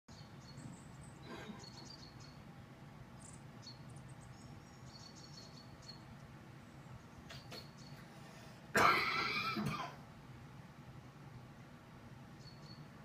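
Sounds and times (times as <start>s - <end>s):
bird chirps and twitters: 0.1s - 2.5s, 3.1s - 8.1s, 12.3s - 13.0s
low background hum: 0.1s - 13.0s.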